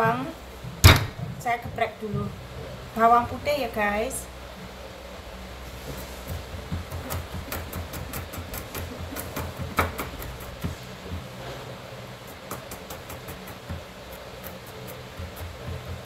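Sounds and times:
knife chopping on plastic board: 6.3s - 10.8s, 12.3s - 16.0s.

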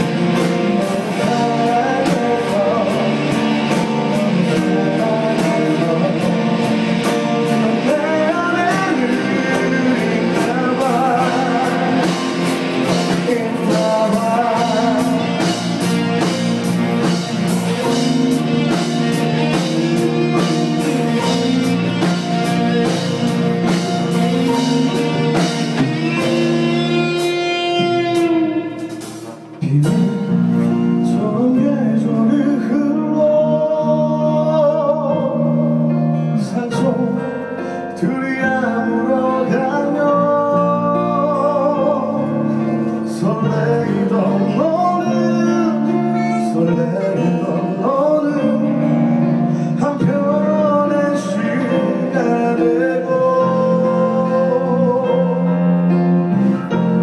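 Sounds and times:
guitars over steady beat: 0.0s - 57.0s
person singing: 0.0s - 57.0s.

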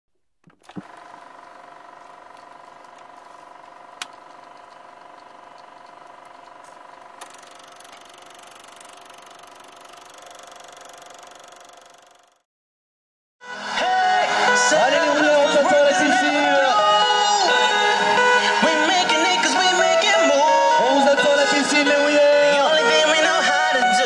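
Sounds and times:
electronic hum: 0.5s - 12.4s.

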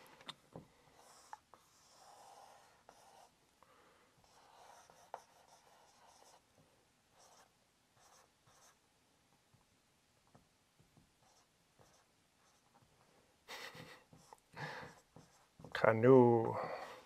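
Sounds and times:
marker scratching on board: 0.9s - 3.4s, 4.2s - 8.8s, 10.9s - 12.9s, 13.7s - 15.8s.

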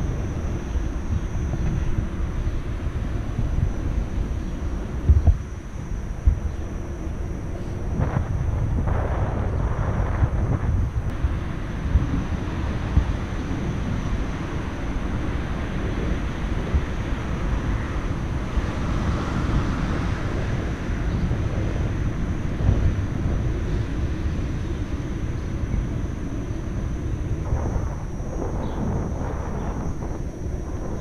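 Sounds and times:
city road traffic rumble: 0.0s - 31.0s
wind buffeting microphone: 0.0s - 31.0s.

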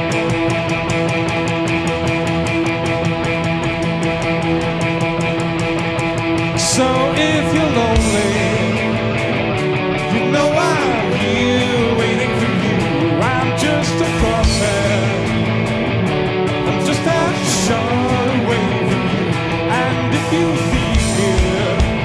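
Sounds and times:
drums and cymbals: 0.0s - 22.0s
electric guitars strumming: 0.0s - 22.0s
person singing: 6.4s - 9.4s, 10.0s - 15.7s, 16.5s - 22.0s.

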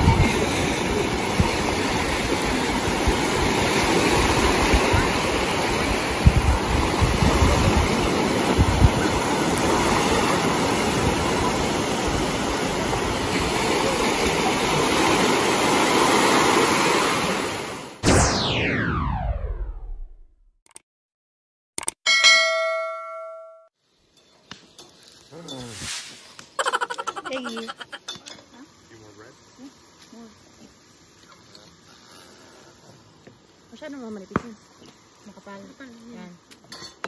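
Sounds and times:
small waves washing onto shore: 0.0s - 18.0s.

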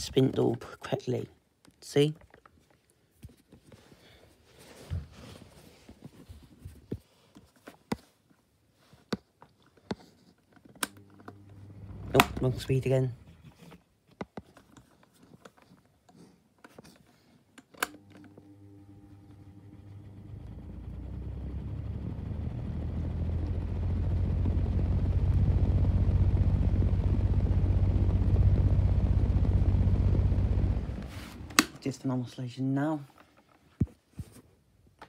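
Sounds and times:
fan motor humming: 10.8s - 13.4s, 17.9s - 32.0s
fan switch click: 31.4s - 31.8s.

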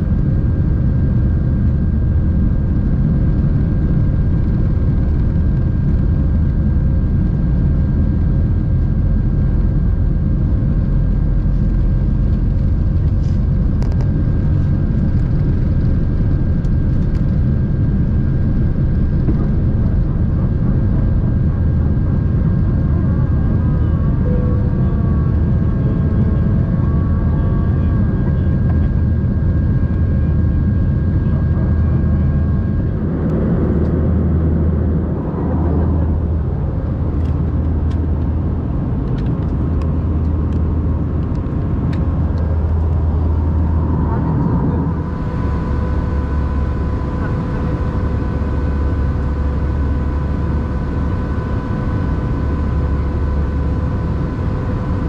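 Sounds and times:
jet engines rumbling: 0.0s - 55.0s
thin high tone: 24.2s - 25.1s.

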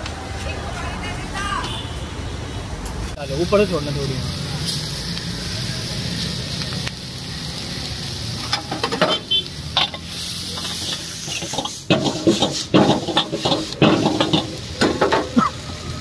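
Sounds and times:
food sizzling: 3.2s - 16.0s
metal ladle scraping a wok: 8.4s - 15.2s.

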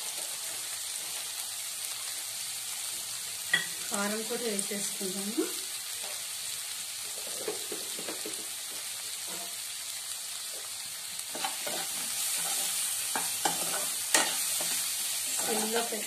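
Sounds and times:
vegetables sizzling in oil: 0.0s - 16.0s
spatula scraping a pan: 9.2s - 9.7s, 11.3s - 15.9s.

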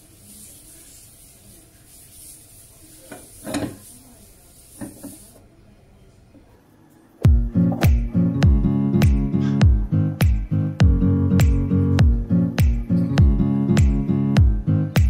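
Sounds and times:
paper rubbing inside frying pan: 0.0s - 5.4s.

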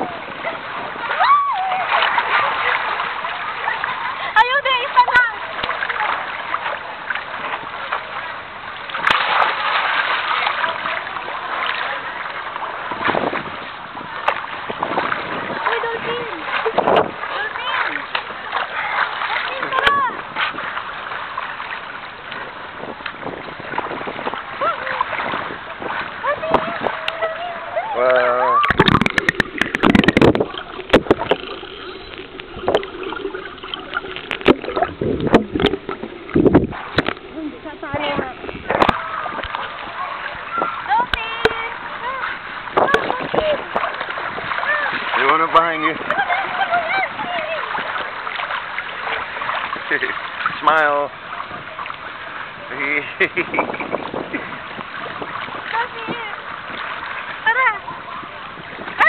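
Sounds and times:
sea water sloshing and splashing: 0.0s - 59.0s.

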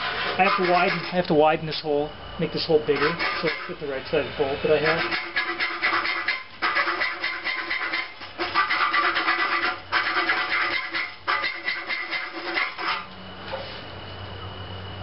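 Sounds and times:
hand file rasping on metal: 0.0s - 1.2s, 2.9s - 3.8s, 4.8s - 13.1s.

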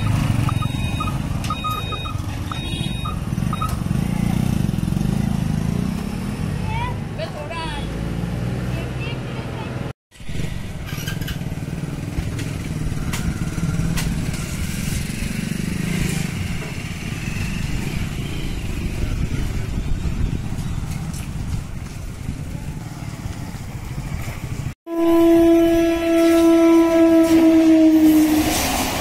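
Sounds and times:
motorcycles riding past: 3.1s - 7.2s, 10.6s - 24.8s
train horn: 24.9s - 28.8s.

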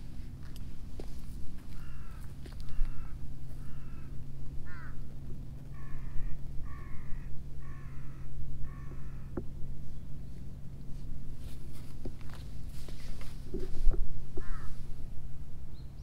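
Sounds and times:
low hum and rumble: 0.0s - 16.0s
crow cawing: 1.7s - 5.1s, 5.7s - 9.4s, 14.4s - 14.8s.

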